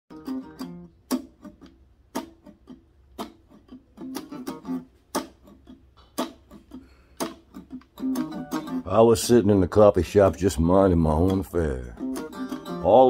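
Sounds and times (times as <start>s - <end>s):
plucked guitar notes: 0.1s - 13.0s.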